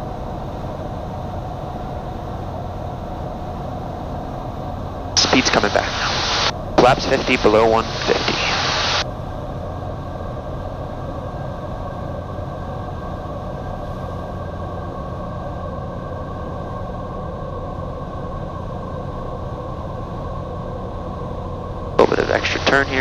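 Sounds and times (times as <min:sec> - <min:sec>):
propeller plane engine drone: 0:00.0 - 0:23.0.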